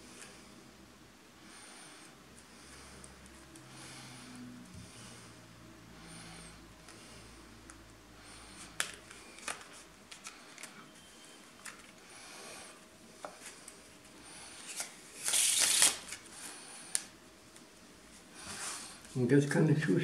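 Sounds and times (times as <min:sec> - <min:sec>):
cards shuffling: 0:08.6 - 0:10.8, 0:11.6 - 0:12.0, 0:14.6 - 0:16.3
playing cards clicking and rustling: 0:08.6 - 0:10.8, 0:11.5 - 0:12.0, 0:14.6 - 0:16.2.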